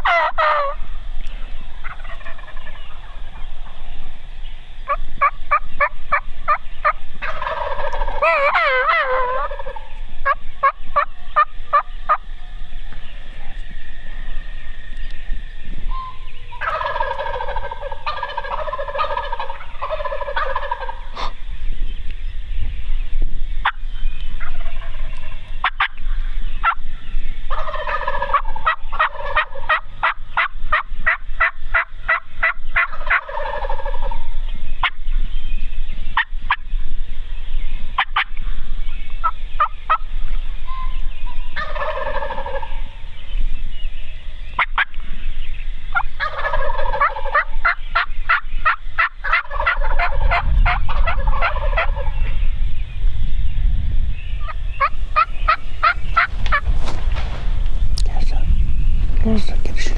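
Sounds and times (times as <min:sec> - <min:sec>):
short sharp turkey calls: 0:00.0 - 0:00.8, 0:15.9 - 0:21.4
wild turkeys gobbling: 0:00.0 - 0:03.9, 0:04.9 - 0:14.7, 0:15.9 - 0:21.4, 0:24.4 - 0:26.8, 0:27.5 - 0:35.1, 0:36.2 - 0:36.7, 0:38.0 - 0:38.5, 0:39.2 - 0:43.3, 0:44.5 - 0:45.2, 0:45.9 - 0:52.4, 0:54.4 - 0:58.3.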